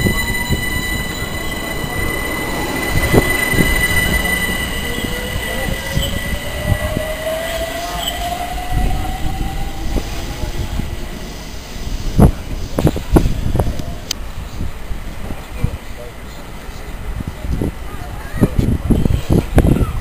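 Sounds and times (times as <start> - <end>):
train motor whine rising: 0.0 - 11.9
steady high whine: 0.0 - 14.2
train wheels rumbling on track: 0.0 - 20.0.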